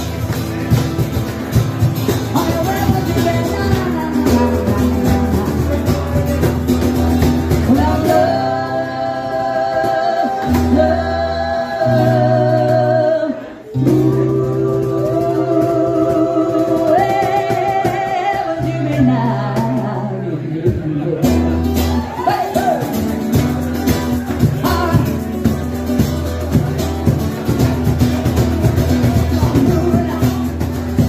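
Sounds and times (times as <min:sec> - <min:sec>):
acoustic guitars strumming: 0:00.0 - 0:31.0
voices singing harmony: 0:07.7 - 0:20.4.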